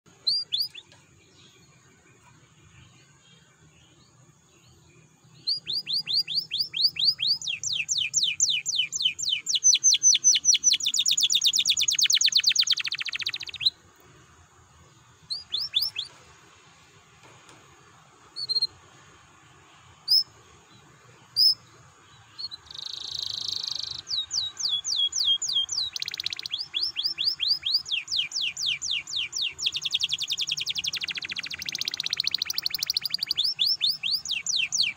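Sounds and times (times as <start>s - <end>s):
canary chirps: 0.1s - 1.0s, 3.9s - 13.8s, 15.2s - 16.2s, 18.3s - 19.0s, 19.8s - 34.9s
canary trilling: 5.5s - 13.8s, 15.3s - 16.1s, 22.4s - 34.9s.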